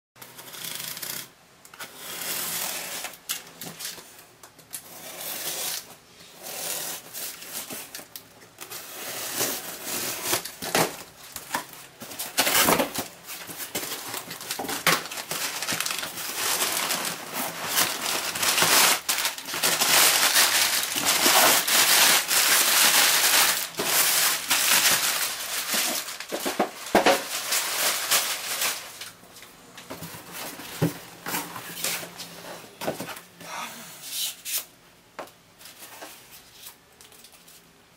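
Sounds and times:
packing paper crinkling: 0:07.0 - 0:32.2.

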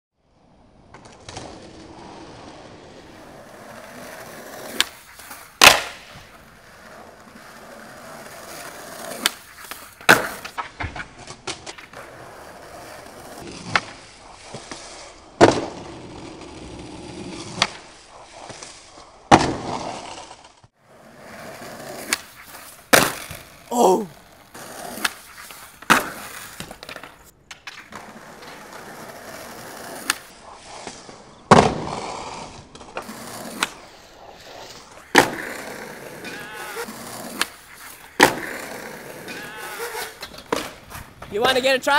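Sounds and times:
skateboard wheels rolling on stone: 0:00.4 - 0:41.9
skateboard clacking and slamming: 0:05.6 - 0:06.4, 0:08.5 - 0:12.2, 0:35.1 - 0:37.6, 0:38.2 - 0:41.6.

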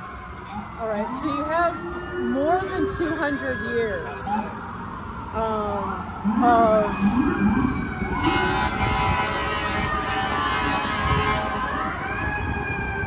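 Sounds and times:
city traffic: 0:00.0 - 0:13.0
siren wailing: 0:00.0 - 0:13.0
long horn blast: 0:08.2 - 0:11.8.

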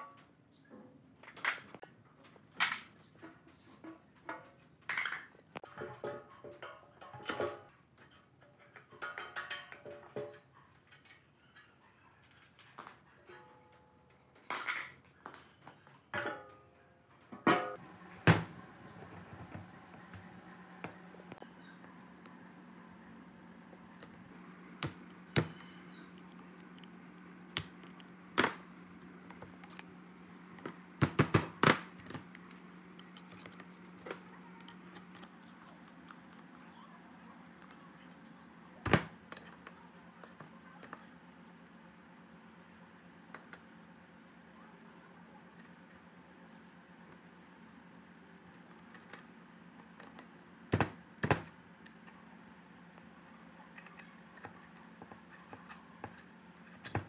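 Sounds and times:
metal tools clinking: 0:05.0 - 0:11.8.

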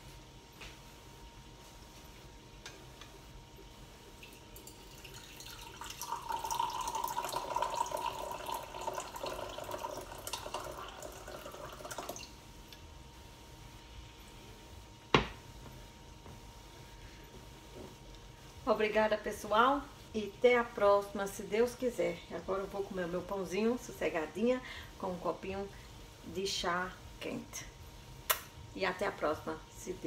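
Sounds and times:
liquid pouring: 0:04.2 - 0:12.3.

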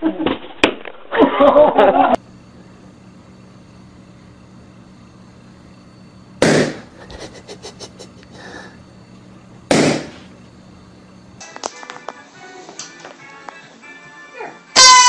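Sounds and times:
faint steady hum: 0:01.2 - 0:14.3
balloons popping: 0:06.4 - 0:06.8, 0:09.7 - 0:10.1.

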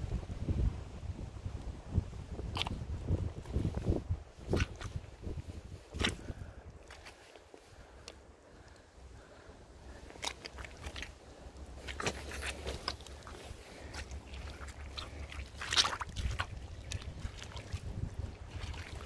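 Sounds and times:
boots squelching in mud: 0:04.4 - 0:05.1, 0:05.9 - 0:07.7, 0:09.9 - 0:19.0.

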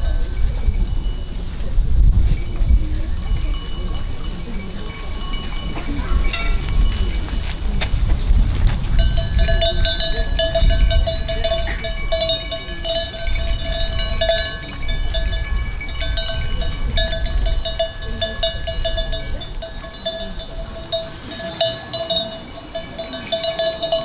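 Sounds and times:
high chimes tinkling: 0:00.0 - 0:07.8, 0:09.0 - 0:24.0
low bell ringing: 0:02.3 - 0:07.7, 0:09.0 - 0:24.0.

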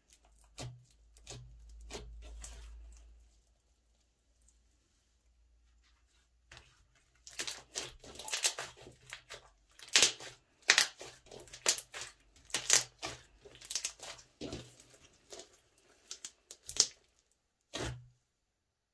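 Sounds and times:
slime squelching and popping: 0:00.0 - 0:03.1, 0:06.6 - 0:18.1.

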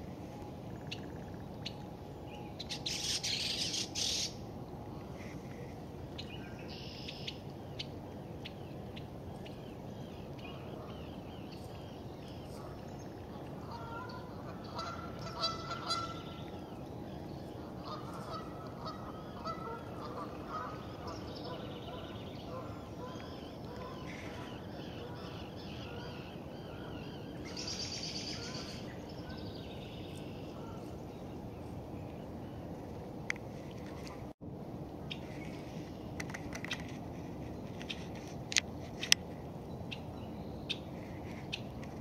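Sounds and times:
low background hum: 0:00.0 - 0:42.0
bird honking calls: 0:13.6 - 0:16.5, 0:17.8 - 0:28.8.

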